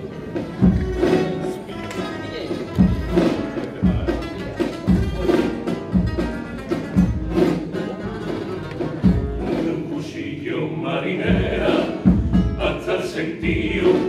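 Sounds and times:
guitars playing: 0:00.0 - 0:14.0
men's choir singing: 0:09.4 - 0:14.0.

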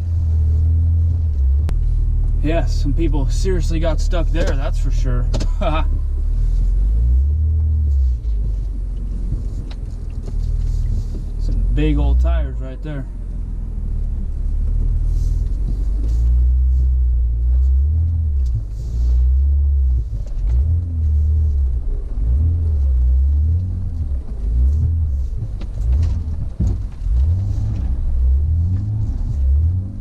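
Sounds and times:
low rumble: 0:00.0 - 0:30.0
truck engine revving: 0:00.0 - 0:30.0.

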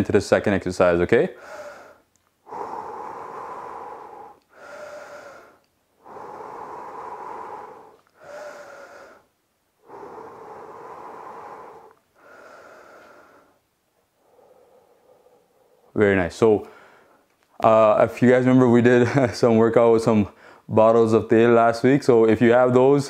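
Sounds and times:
man breathing deeply: 0:01.3 - 0:16.0, 0:16.6 - 0:17.3, 0:20.3 - 0:20.7.

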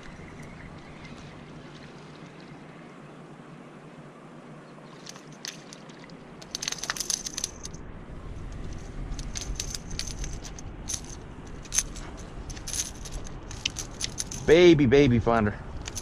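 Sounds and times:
metallic clicks of fishing tackle: 0:05.0 - 0:07.8, 0:08.5 - 0:14.5, 0:15.8 - 0:16.0.

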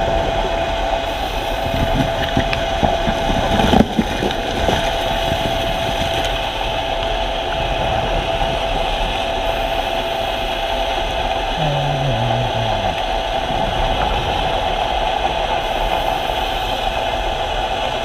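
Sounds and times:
ship engine hum underwater: 0:00.0 - 0:18.0
steady high tone: 0:11.6 - 0:13.0.

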